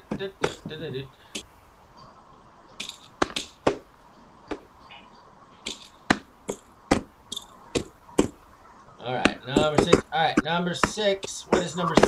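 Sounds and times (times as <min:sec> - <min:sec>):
sharp taps: 0:02.8 - 0:03.9, 0:05.6 - 0:08.4, 0:09.2 - 0:12.0.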